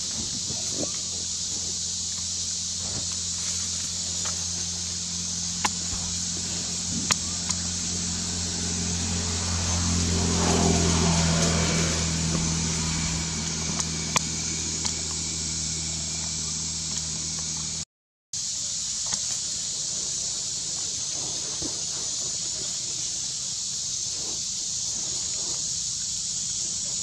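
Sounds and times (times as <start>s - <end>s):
engine humming: 0.0s - 17.8s, 19.1s - 27.0s
vehicle passing by: 4.2s - 17.7s.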